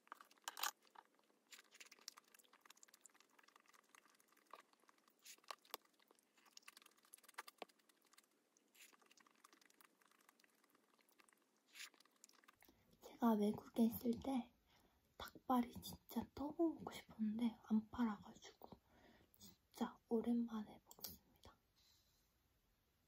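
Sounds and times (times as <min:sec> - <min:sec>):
person chewing food: 0:00.0 - 0:13.0.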